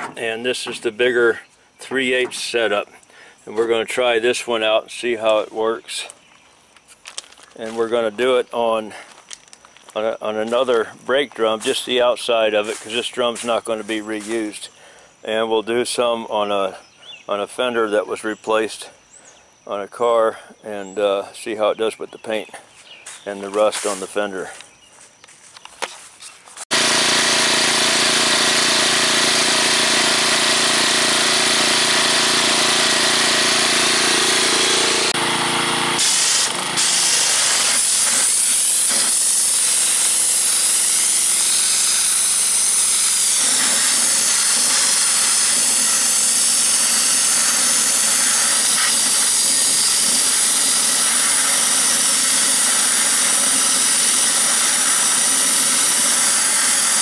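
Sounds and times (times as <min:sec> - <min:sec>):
pressure washer engine hum: 0:26.7 - 0:57.0.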